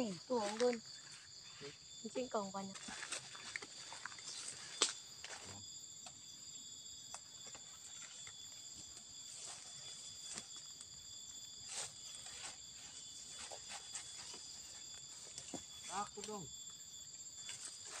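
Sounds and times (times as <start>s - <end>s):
insects chirring: 0.0s - 18.0s
leaves rustling and snapping: 2.8s - 5.4s.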